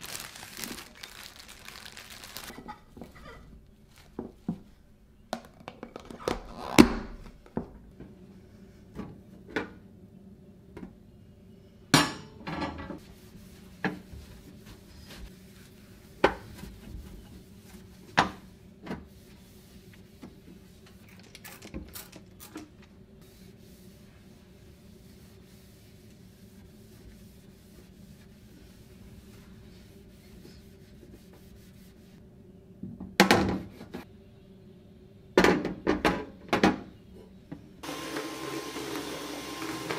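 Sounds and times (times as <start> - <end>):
cloth rubbing on hob: 13.0 - 21.0, 23.2 - 32.2.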